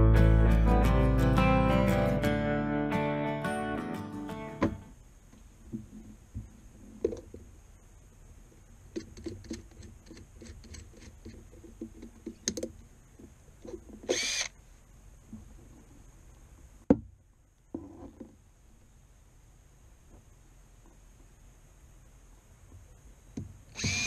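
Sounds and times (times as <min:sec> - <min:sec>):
cordless drill whine: 0:14.1 - 0:14.6, 0:23.7 - 0:24.0.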